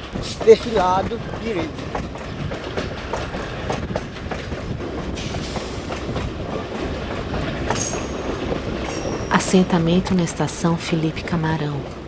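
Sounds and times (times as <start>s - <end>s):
train wheels clattering: 0.0s - 12.0s.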